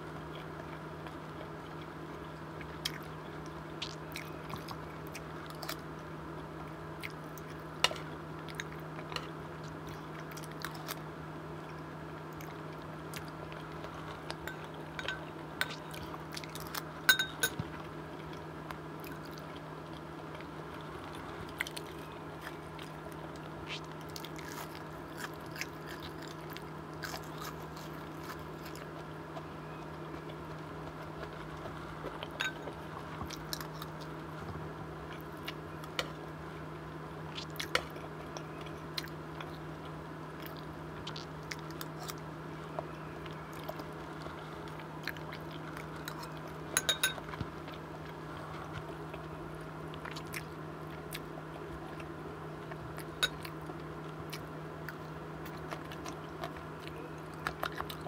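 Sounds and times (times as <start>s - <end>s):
steady low hum: 0.0s - 58.0s
close chewing: 0.1s - 5.9s, 6.7s - 36.2s, 37.3s - 58.0s
spoon clicking on teeth and bowls: 14.3s - 15.8s, 17.1s - 17.6s, 32.3s - 32.7s, 46.0s - 47.2s.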